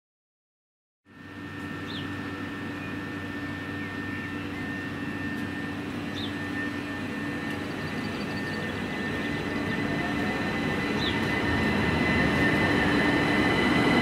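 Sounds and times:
electric train whine and rumble: 0:01.1 - 0:14.0.

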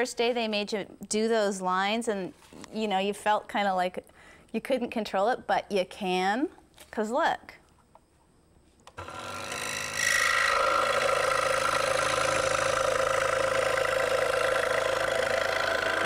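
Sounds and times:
scroll saw cutting wood: 0:08.9 - 0:16.0.

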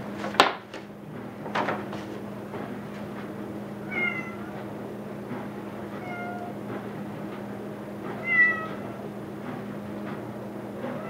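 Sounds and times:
steady low hum: 0:00.0 - 0:11.0
paint roller knocks: 0:00.1 - 0:02.2
cat meowing: 0:03.8 - 0:04.5, 0:06.0 - 0:06.6, 0:08.2 - 0:09.0.

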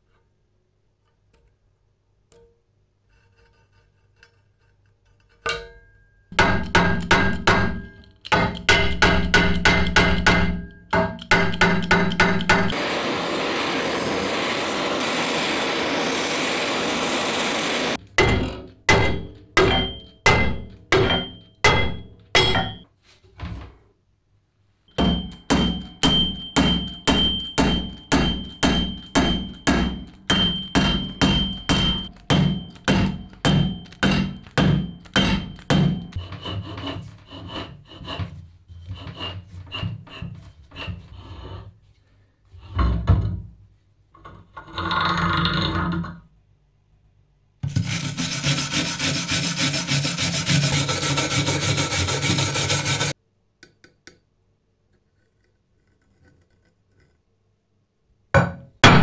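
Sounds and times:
hammer striking metal: 0:05.5 - 0:12.8, 0:17.2 - 0:22.9, 0:24.9 - 0:36.4, 0:58.4 - 0:59.0
propane torch hissing: 0:12.8 - 0:18.0.

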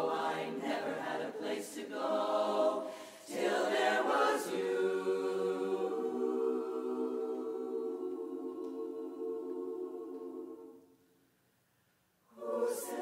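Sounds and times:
women's chorus singing a cappella: 0:00.0 - 0:11.2, 0:12.3 - 0:13.0.

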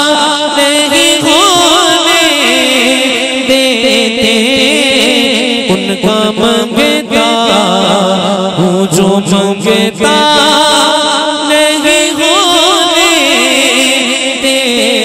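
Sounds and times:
man singing devotional song: 0:00.0 - 0:15.0.

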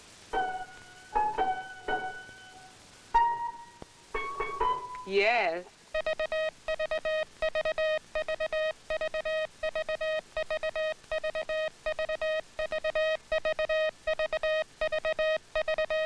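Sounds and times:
morse code buzzy tone: 0:06.0 - 0:16.0.

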